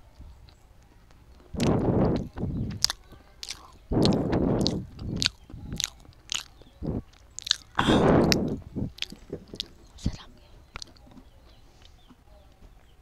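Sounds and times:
biting and chewing: 0.4 - 12.2
sharp mouth clicks: 1.4 - 11.0.

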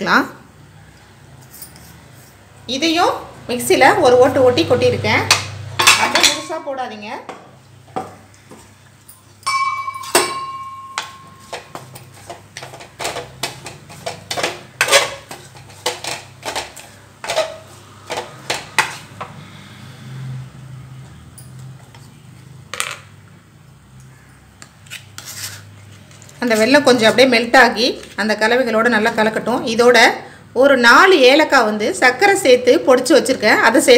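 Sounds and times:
ringing metallic clang: 9.1 - 11.7
spatula scraping a pan: 11.3 - 19.2.

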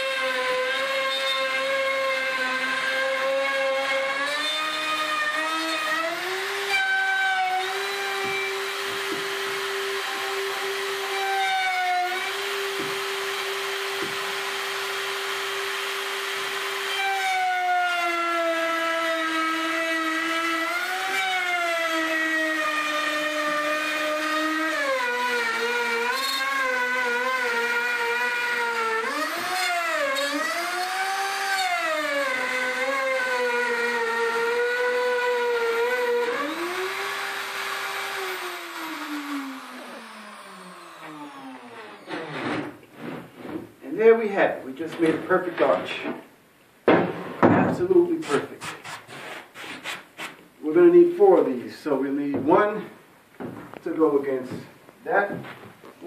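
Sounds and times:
router motor whining: 0.0 - 42.5.

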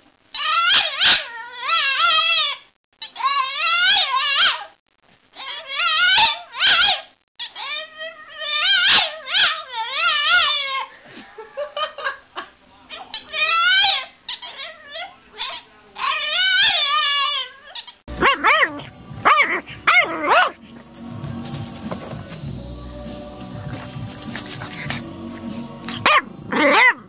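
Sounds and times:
dog whining howls: 18.2 - 20.6, 26.0 - 27.0.

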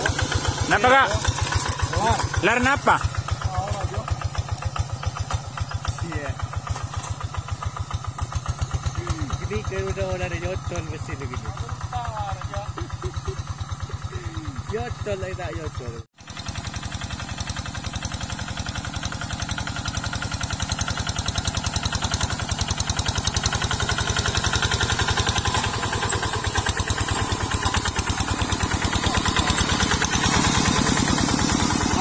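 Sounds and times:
diesel engine running under load: 0.0 - 32.0.

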